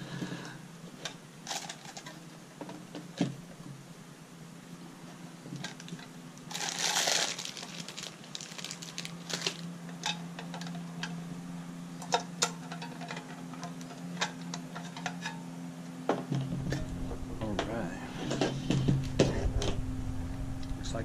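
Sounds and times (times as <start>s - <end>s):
faint low hum: 0.0s - 21.0s
rustling scrape: 6.5s - 9.7s
clicks and knocks of handling: 12.0s - 15.4s.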